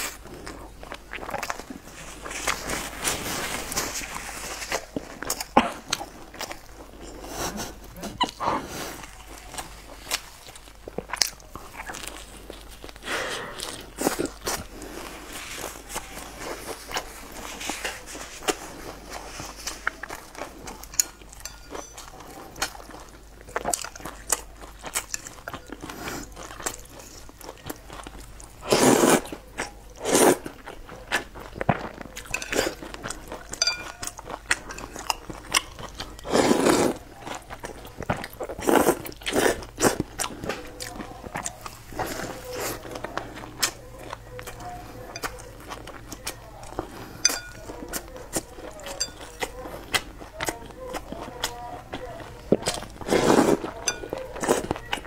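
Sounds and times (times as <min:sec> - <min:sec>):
chewing with crunching: 0:00.0 - 0:55.0
slurping noodles: 0:28.6 - 0:29.4, 0:30.0 - 0:30.6, 0:36.2 - 0:37.1, 0:38.4 - 0:40.5, 0:52.9 - 0:53.8.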